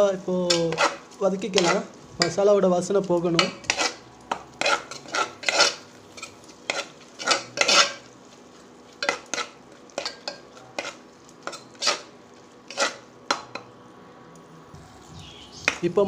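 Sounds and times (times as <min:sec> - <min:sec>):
metal spoon scraping pot: 0:00.5 - 0:02.4, 0:03.4 - 0:04.0, 0:04.6 - 0:08.1, 0:09.0 - 0:12.1, 0:12.7 - 0:13.6.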